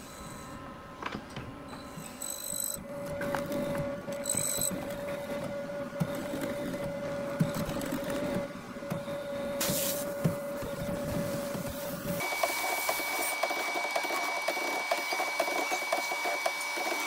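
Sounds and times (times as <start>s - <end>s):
short hiss: 9.6s - 10.1s.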